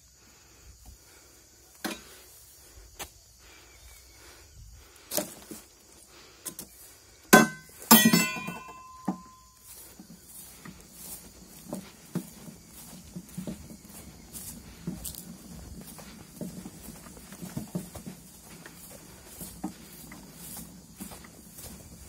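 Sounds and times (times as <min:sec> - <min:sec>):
ringing metal clanks: 0:07.3 - 0:09.7
metal pole knocking: 0:07.4 - 0:09.4.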